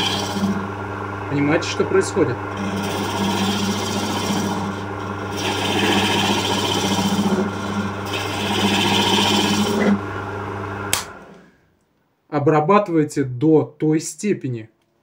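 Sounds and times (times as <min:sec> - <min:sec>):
tool scraping spinning wood: 0:00.0 - 0:10.1
wood lathe motor hum: 0:00.0 - 0:11.4
sharp click: 0:10.9 - 0:11.2.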